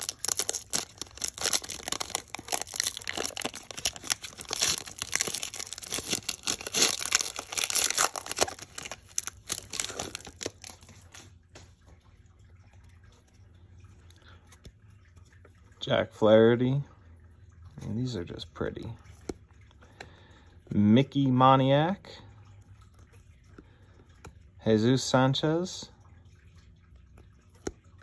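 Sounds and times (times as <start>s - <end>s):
plastic wrapper tearing and crinkling: 0.0s - 11.3s.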